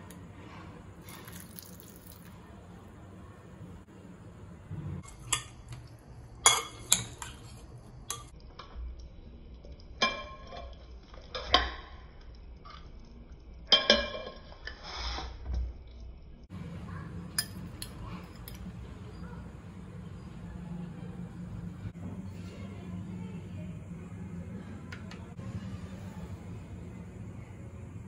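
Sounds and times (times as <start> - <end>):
spoon clinking against glass bowl: 17.3 - 18.7.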